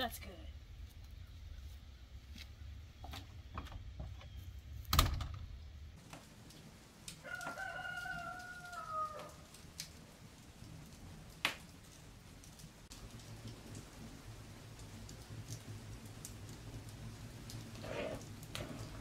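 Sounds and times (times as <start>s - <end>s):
rooster crowing: 7.2s - 9.5s.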